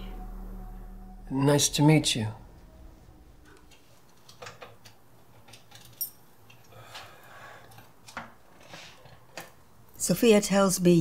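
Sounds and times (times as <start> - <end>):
small metal objects jingling: 5.7 - 6.3.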